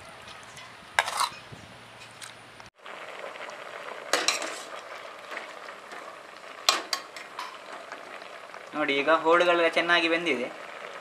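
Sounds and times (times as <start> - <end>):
pot bubbling: 2.8 - 11.0.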